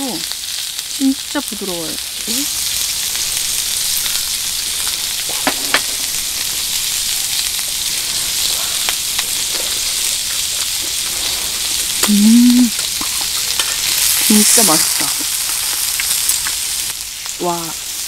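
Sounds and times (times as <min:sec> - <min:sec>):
beef sizzling in a frying pan: 0:00.0 - 0:18.0
person humming: 0:12.0 - 0:12.8.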